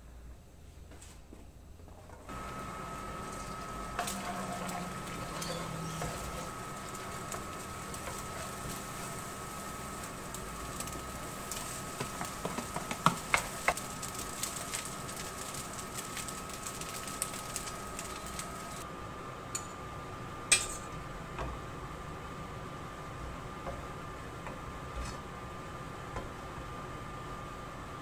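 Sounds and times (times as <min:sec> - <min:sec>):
spatula scraping a frying pan: 0:02.4 - 0:13.8, 0:24.9 - 0:25.3.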